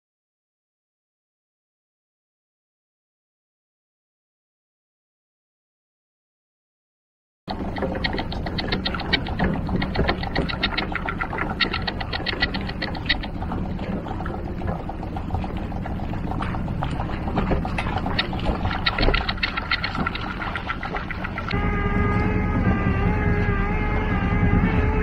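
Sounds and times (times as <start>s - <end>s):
rapid even clicking: 7.5s - 21.6s
outboard motor rumbling: 7.5s - 25.0s.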